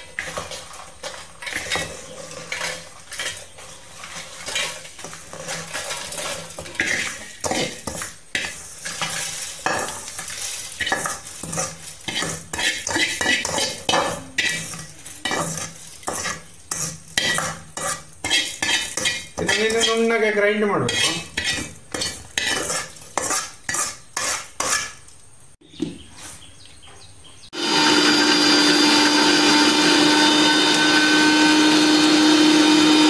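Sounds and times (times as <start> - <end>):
metal clinking and scraping: 0.1 - 20.1, 20.9 - 25.1
dry seeds rattling against steel: 0.2 - 13.8.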